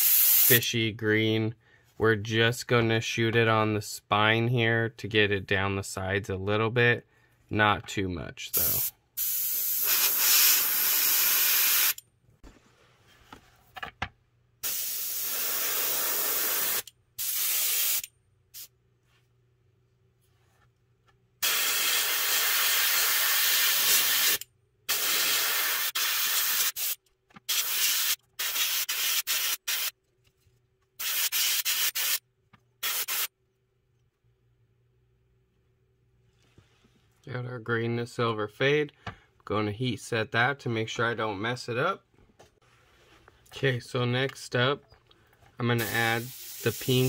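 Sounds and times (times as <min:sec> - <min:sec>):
airbrush spraying hiss: 0:00.0 - 0:00.6, 0:08.6 - 0:12.0, 0:14.6 - 0:18.7, 0:21.4 - 0:29.9, 0:31.0 - 0:32.2, 0:32.8 - 0:33.3, 0:45.8 - 0:47.0.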